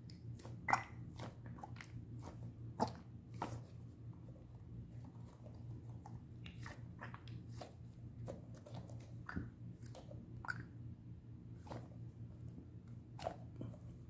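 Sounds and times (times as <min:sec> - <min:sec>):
squishy toy squeaking and squelching: 0:00.4 - 0:03.7.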